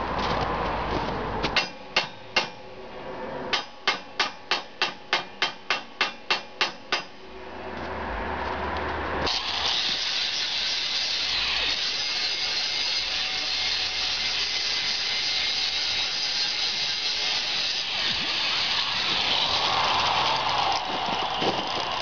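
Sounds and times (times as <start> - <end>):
hammer striking steel: 1.5 - 2.7, 3.5 - 7.2
angle grinder whine: 9.3 - 22.0.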